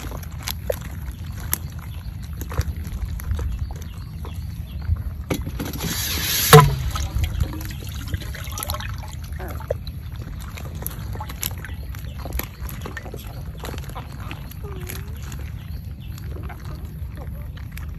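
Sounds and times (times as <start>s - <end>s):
eels slithering in basket: 5.5s - 17.9s.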